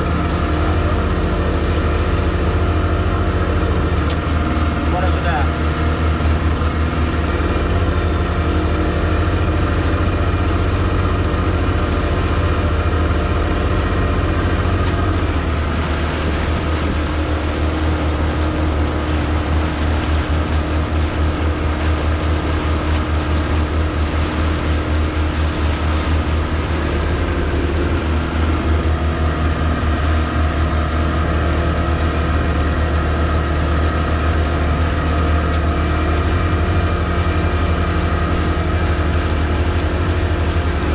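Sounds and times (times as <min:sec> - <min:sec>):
outboard motor running: 0:00.0 - 0:40.9
water rushing past hull: 0:00.0 - 0:40.9.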